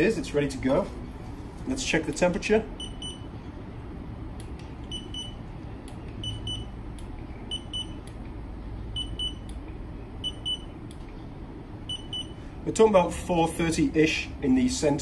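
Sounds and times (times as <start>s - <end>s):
thermometer beeping: 2.8s - 3.3s, 4.8s - 5.4s, 6.2s - 6.8s, 7.5s - 8.2s, 8.9s - 9.6s, 10.2s - 10.8s, 11.8s - 12.5s.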